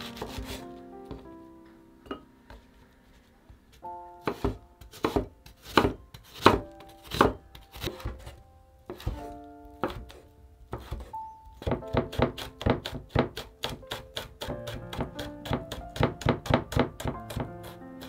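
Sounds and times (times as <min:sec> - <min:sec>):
knife chopping on wooden board: 0:00.1 - 0:01.2, 0:04.2 - 0:17.8.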